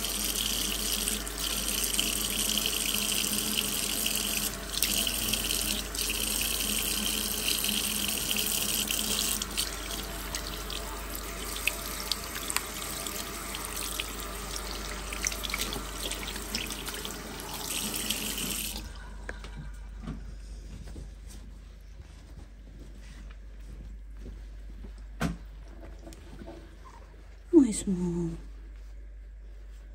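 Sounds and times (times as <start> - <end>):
tap water running into sink: 0.0 - 18.9.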